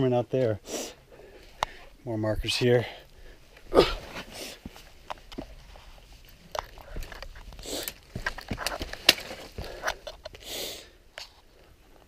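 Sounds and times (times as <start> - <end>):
footsteps over rocks and branches: 3.1 - 10.4.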